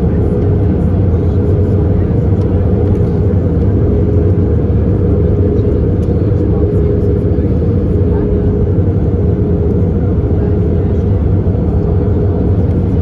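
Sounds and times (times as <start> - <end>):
airliner cabin engine rumble: 0.0 - 13.0.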